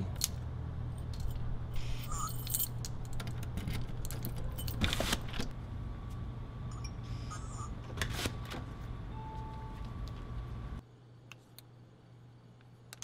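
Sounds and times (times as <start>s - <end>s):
steady low hum: 0.0s - 13.0s
keys jangling and clicking: 0.2s - 5.0s
key scraping in lock: 1.0s - 5.5s.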